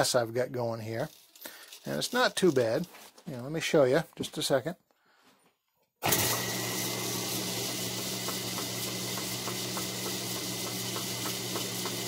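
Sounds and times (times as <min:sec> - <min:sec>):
lathe motor hum and hiss: 0:06.1 - 0:12.0.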